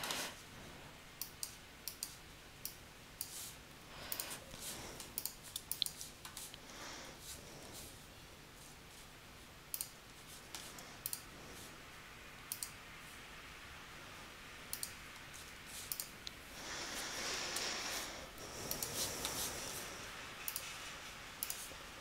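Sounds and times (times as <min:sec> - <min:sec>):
soft rustling hiss: 0:00.0 - 0:22.0
computer mouse clicking: 0:01.2 - 0:03.4, 0:04.0 - 0:04.4, 0:05.0 - 0:06.6, 0:09.7 - 0:11.3, 0:12.5 - 0:12.8, 0:14.7 - 0:16.4, 0:18.6 - 0:19.4, 0:20.4 - 0:20.8, 0:21.4 - 0:21.7.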